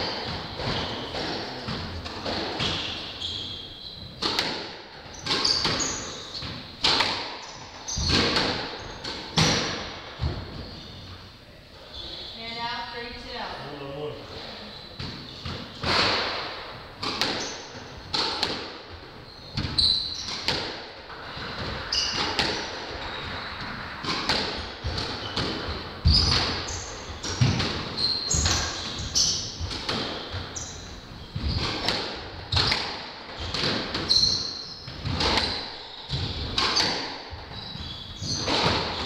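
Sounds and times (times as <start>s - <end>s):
shoes squeaking on wooden floor: 0.0s - 4.3s, 5.1s - 9.6s, 10.2s - 12.8s, 14.3s - 16.0s, 17.0s - 20.7s, 24.9s - 39.0s
squash ball hits echoing: 0.0s - 10.6s, 15.0s - 39.0s.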